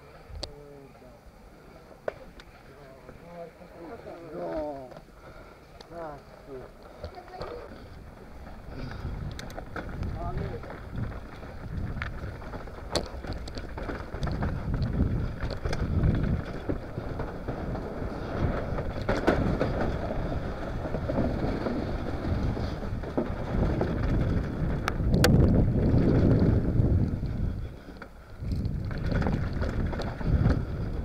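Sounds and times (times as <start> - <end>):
tyres rolling over dirt: 2.0 - 31.0
bike clicks and rattles: 4.4 - 31.0
wind on microphone: 7.9 - 31.0.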